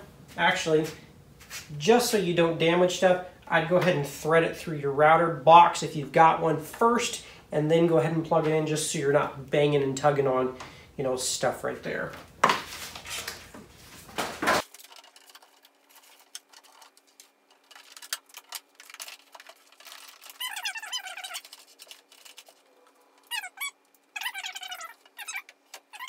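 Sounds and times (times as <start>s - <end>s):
cable rustling: 12.6s - 26.0s
faint clicks and scrapes: 14.6s - 26.0s
short high squeaks: 20.2s - 21.8s, 23.0s - 26.0s.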